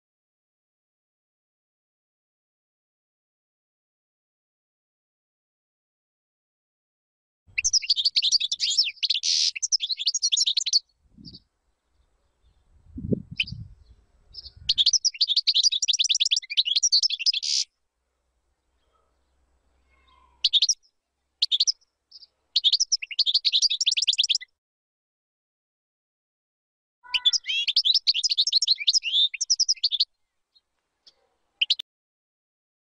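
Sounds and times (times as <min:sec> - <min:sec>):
goldfinch twittering song: 0:07.5 - 0:11.4, 0:13.3 - 0:17.7, 0:20.0 - 0:24.5, 0:27.0 - 0:31.8
short bird calls: 0:07.5 - 0:11.4, 0:13.4 - 0:17.7, 0:18.7 - 0:24.5, 0:27.0 - 0:31.8.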